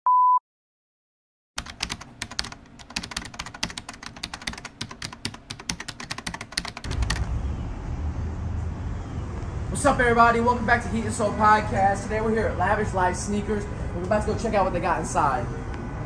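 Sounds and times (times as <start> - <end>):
computer keyboard typing: 1.6 - 7.3.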